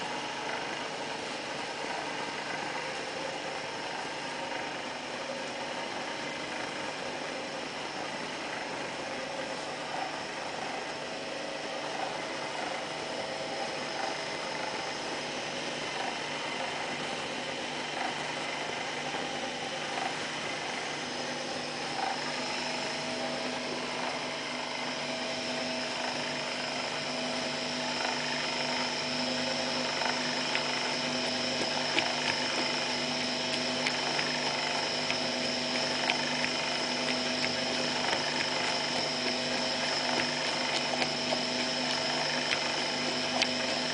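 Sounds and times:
electric motor whine: 0.0s - 43.9s.

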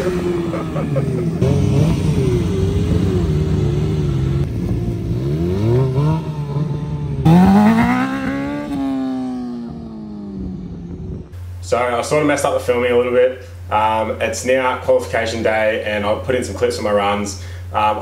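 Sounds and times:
motorcycle engine revving: 0.0s - 11.4s.

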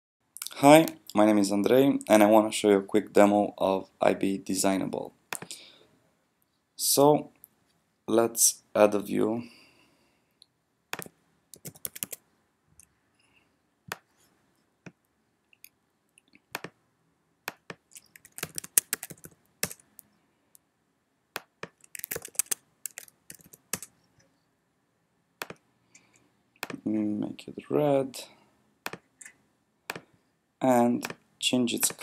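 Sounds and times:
computer keyboard typing: 11.0s - 12.2s, 17.5s - 19.8s, 21.4s - 23.9s.

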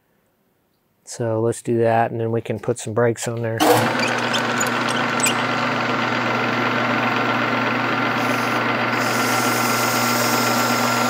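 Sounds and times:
metal lathe humming and whining: 3.6s - 11.0s.

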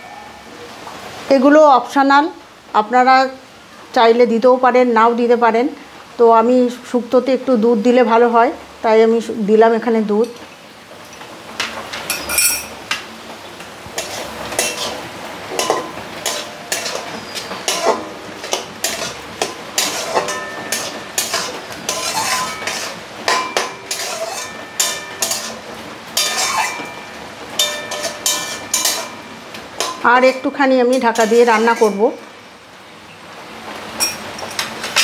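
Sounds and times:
metal spatula scraping a pan: 13.9s - 32.3s.

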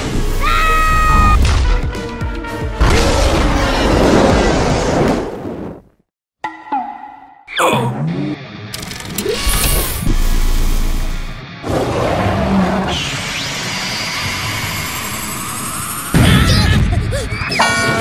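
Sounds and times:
background music: 0.0s - 3.8s.

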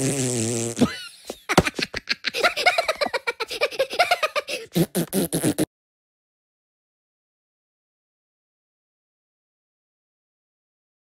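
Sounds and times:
fart sound effect squeak: 0.0s - 1.0s, 4.7s - 5.7s
high-pitched cartoon giggling: 0.8s - 5.0s.

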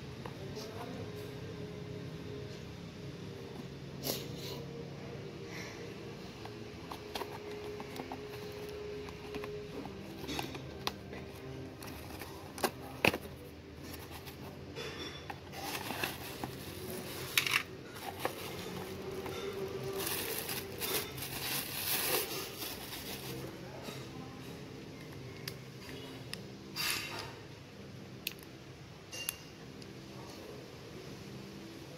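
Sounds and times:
cardboard box handled: 6.8s - 14.6s, 15.4s - 23.4s
plastic wrapping crinkling: 6.8s - 23.6s.

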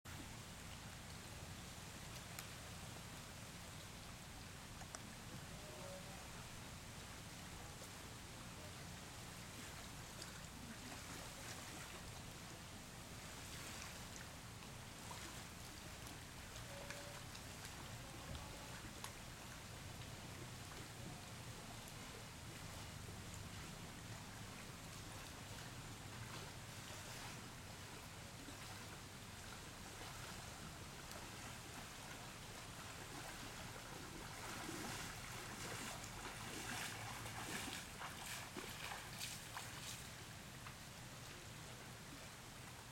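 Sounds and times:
wind: 0.0s - 42.9s
beach ambience: 0.1s - 42.9s
faint clicks: 4.8s - 5.1s.

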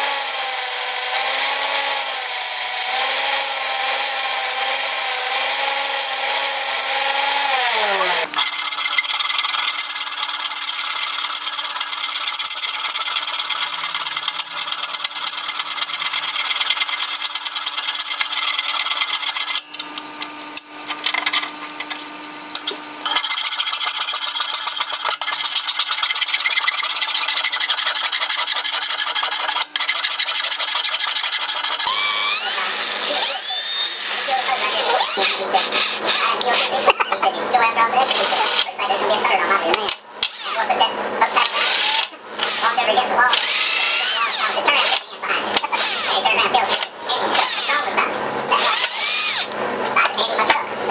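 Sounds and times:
hand filing metal: 0.0s - 19.7s, 23.0s - 36.9s, 37.9s - 49.5s
angle grinder grinding metal: 0.0s - 50.9s
cordless drill whine: 3.5s - 9.0s, 31.8s - 36.2s, 43.4s - 44.5s, 48.6s - 49.6s.

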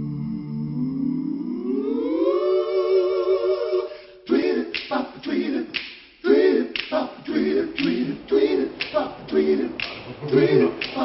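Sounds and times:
group singing rhythmic phrases: 0.0s - 11.0s
sharp vocal clicks: 4.7s - 6.1s, 6.7s - 8.1s, 8.8s - 11.0s.

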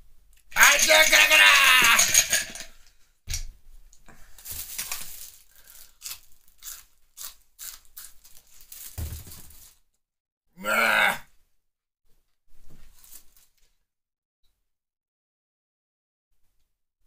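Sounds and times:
green onion being chewed: 5.6s - 8.7s.

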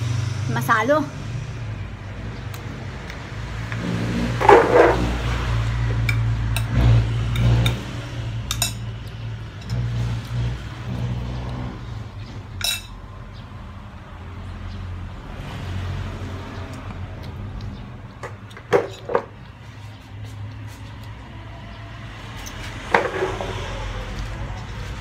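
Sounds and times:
fork clinking on plate: 12.6s - 12.9s.

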